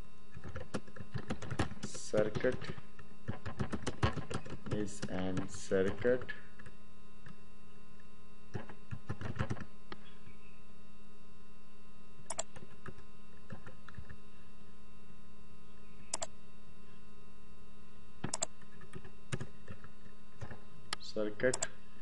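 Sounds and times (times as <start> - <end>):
steady electrical hum: 0.0 - 22.0
computer keyboard typing: 0.3 - 7.4, 8.5 - 9.7, 12.3 - 14.2, 16.1 - 16.3, 18.2 - 20.6.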